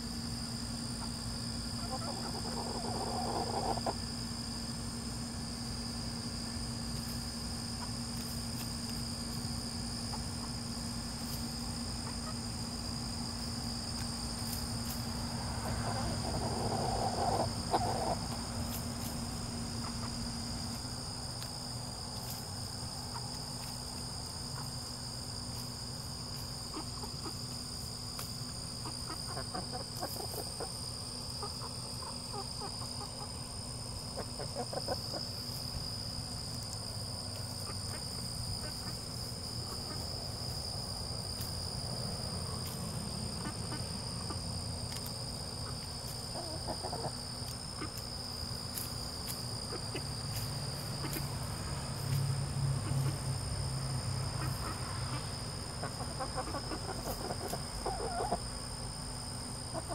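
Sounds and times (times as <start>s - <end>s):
insects singing: 0.0s - 59.9s
low steady hum: 0.0s - 59.9s
chickens clucking: 1.0s - 4.1s, 8.6s - 13.0s, 13.9s - 25.5s, 26.2s - 41.6s, 42.4s - 51.3s, 54.2s - 58.5s, 59.6s - 59.9s.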